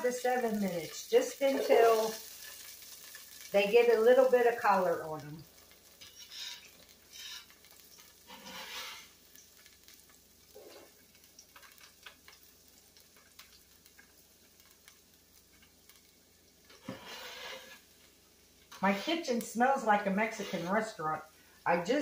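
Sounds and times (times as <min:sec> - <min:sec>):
onions sauteing in oil: 0:00.0 - 0:22.0
spatula scraping pot: 0:06.0 - 0:07.6, 0:08.3 - 0:09.2, 0:16.7 - 0:17.9, 0:18.7 - 0:19.4, 0:20.0 - 0:21.0.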